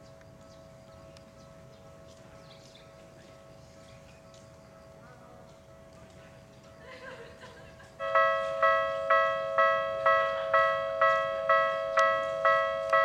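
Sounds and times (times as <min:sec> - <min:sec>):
level crossing bell alarm: 0:08.0 - 0:13.0.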